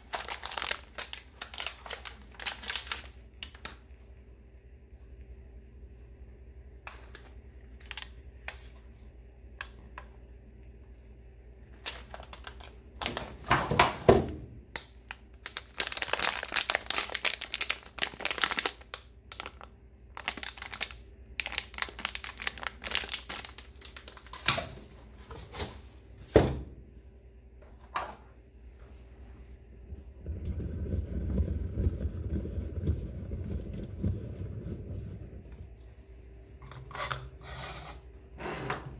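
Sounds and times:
foil bag crinkling: 0.0s - 3.8s, 6.9s - 8.7s, 11.7s - 13.5s, 14.8s - 24.5s.

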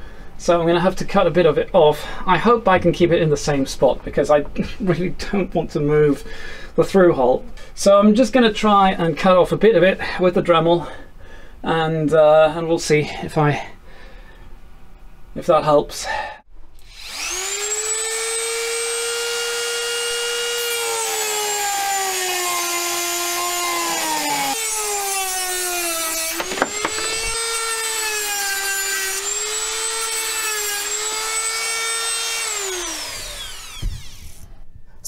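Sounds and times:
rotary tool cutting with high whine: 16.8s - 34.5s.

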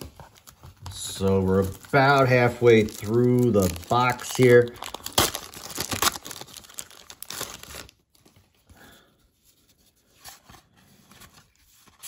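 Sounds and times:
wrapper crinkling and tearing: 0.4s - 8.6s
soft handling sounds: 8.1s - 12.0s.

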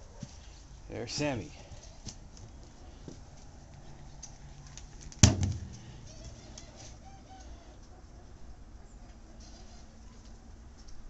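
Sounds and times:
loud thump: 5.2s - 5.8s.

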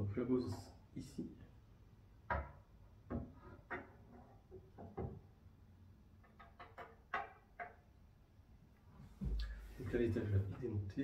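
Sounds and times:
objects knocking and clattering: 2.2s - 5.4s, 6.1s - 8.0s.

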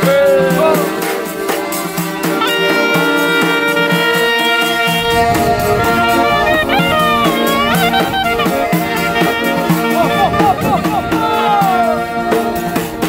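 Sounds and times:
accordion: 0.0s - 13.0s
frame drum beat: 0.0s - 13.0s
clarinet playing ornamented runs: 0.6s - 13.0s.

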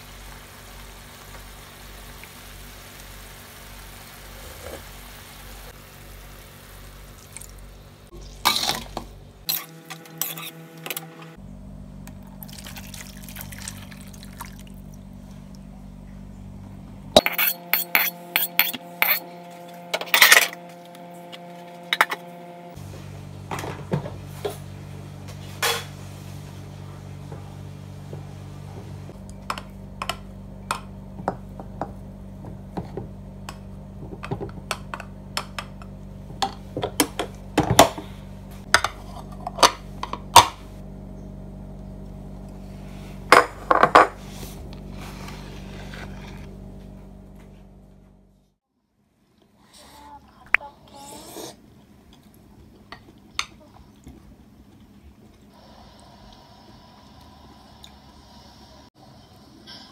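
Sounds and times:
low steady hum: 0.0s - 51.0s.

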